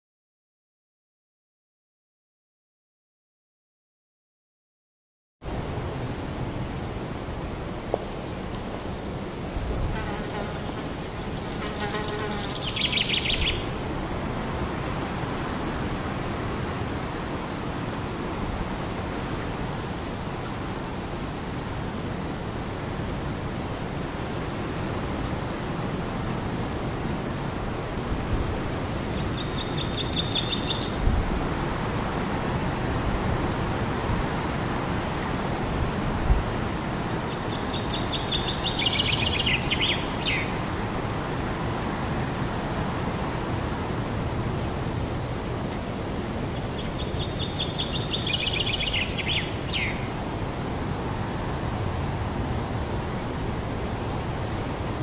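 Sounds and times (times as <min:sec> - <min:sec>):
wind noise on microphone: 0:05.4 - 0:55.0
songbird singing trill: 0:10.7 - 0:13.7, 0:29.1 - 0:31.0, 0:37.3 - 0:40.6, 0:46.6 - 0:50.1
wind buffeting microphone: 0:30.6 - 0:45.4.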